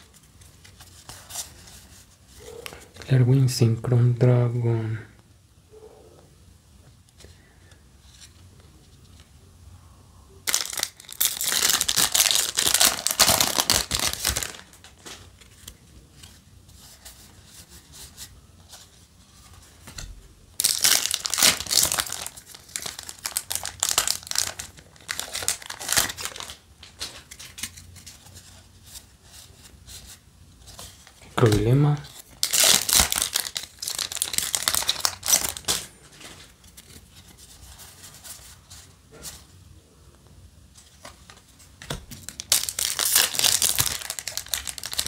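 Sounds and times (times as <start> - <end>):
wrapper crinkling: 10.4 - 15.7, 20.6 - 28.2, 30.8 - 38.6, 42.1 - 45.0.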